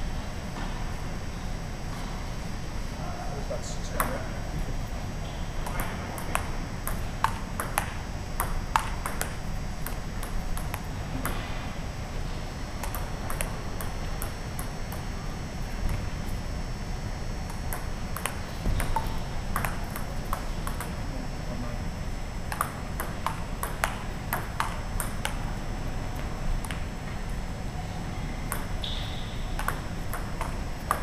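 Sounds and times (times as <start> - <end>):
table tennis ball clicking: 5.6 - 11.4, 12.8 - 15.0, 17.5 - 21.0, 22.5 - 25.4, 26.6 - 26.9, 28.5 - 31.0.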